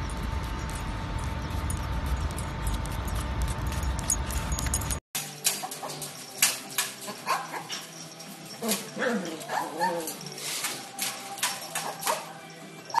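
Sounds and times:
low outdoor rumble: 0.0 - 5.0.

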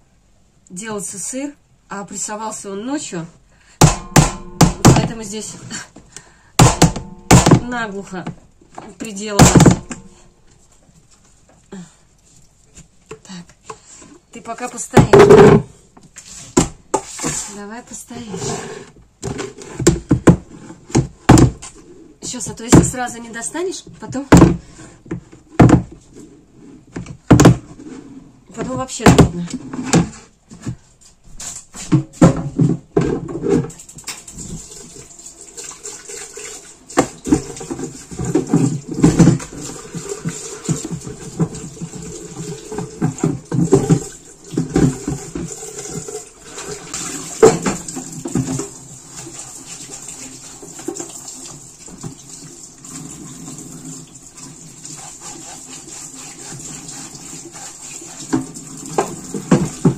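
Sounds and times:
plastic mould knocking and clattering: 3.8 - 5.3, 6.6 - 10.2, 15.0 - 15.8, 19.2 - 21.8, 24.0 - 26.1, 26.9 - 27.8, 28.5 - 30.8, 31.8 - 34.2, 37.0 - 45.6, 47.4 - 48.8
tap water running into sink: 33.8 - 59.9.

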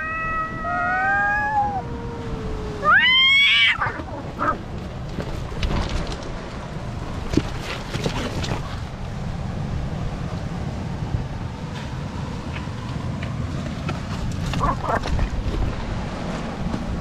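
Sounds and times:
cat screeching: 0.0 - 4.6
cats yowling: 0.0 - 4.7.

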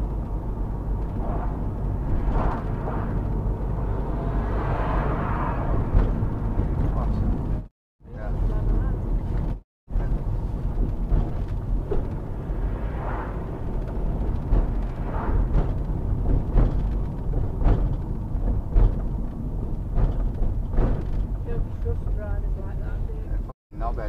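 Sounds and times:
car interior rumble: 0.0 - 24.0
soft knocks and bumps: 8.5 - 12.7, 13.7 - 22.4.

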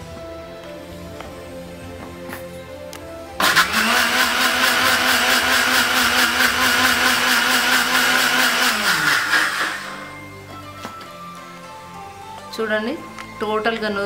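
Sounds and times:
mixer grinder running: 3.4 - 10.2.

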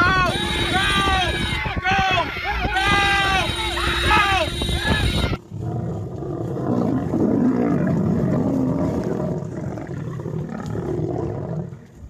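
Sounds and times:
lion growling and roaring: 5.4 - 12.0.

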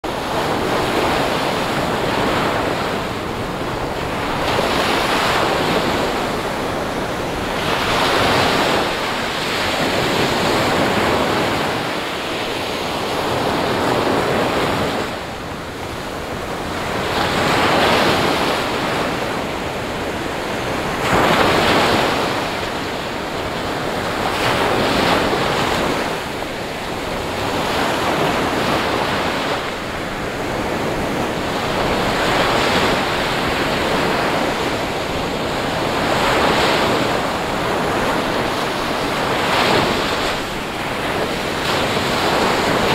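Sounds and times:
waves breaking on beach: 0.0 - 42.9.

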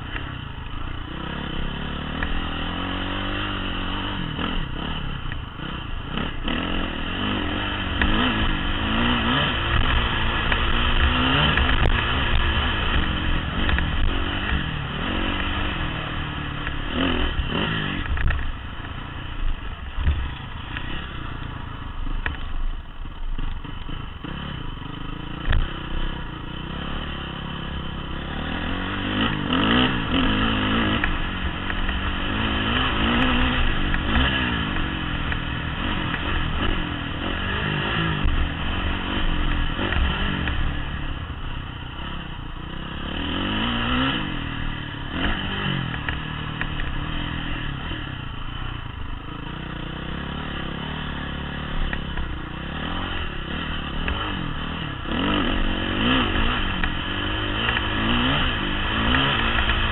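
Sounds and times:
dirt bike engine revving: 0.0 - 22.4, 23.4 - 59.9
clatter and scraping over dirt: 5.2 - 15.8, 16.4 - 24.5, 50.6 - 59.9.

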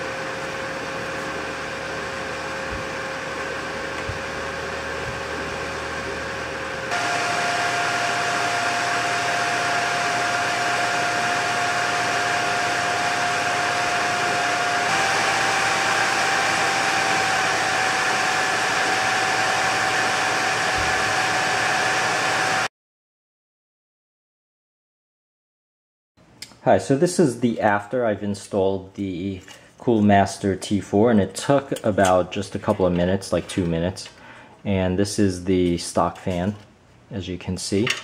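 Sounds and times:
cpu cooler fan whirring: 0.0 - 22.7.

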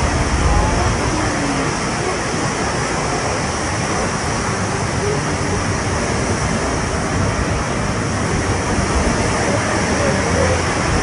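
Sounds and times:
floodwater rushing: 0.0 - 11.0.

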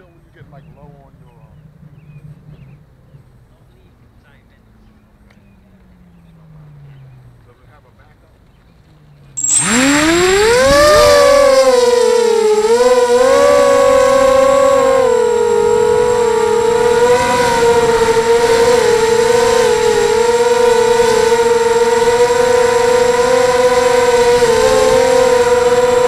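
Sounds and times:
quadcopter motors whining: 9.4 - 26.0.

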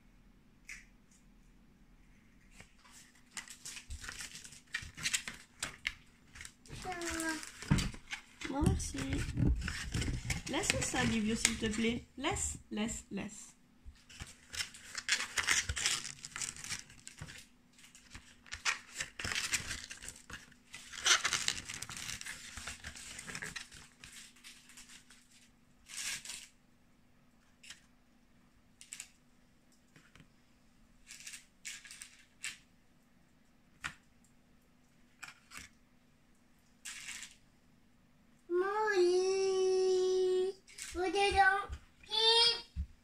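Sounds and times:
cardboard crackling: 2.9 - 12.0, 14.0 - 26.5.

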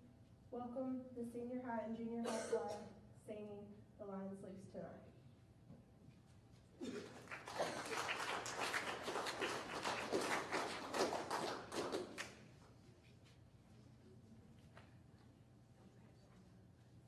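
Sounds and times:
small crowd clapping: 6.8 - 12.7.

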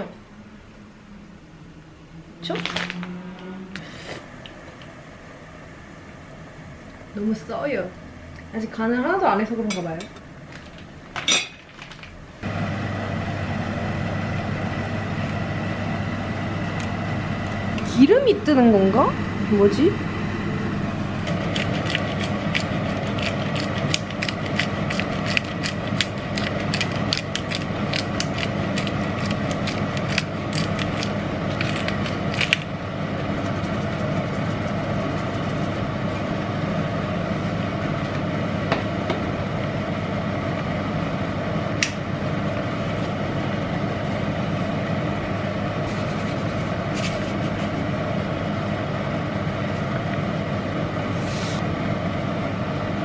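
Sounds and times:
steady hum: 0.0 - 53.0
pepper grinder clicking: 21.5 - 32.7.

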